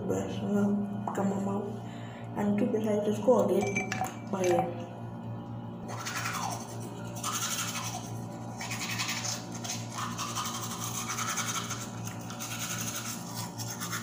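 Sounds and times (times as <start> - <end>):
toothbrush scrubbing teeth: 5.9 - 14.0.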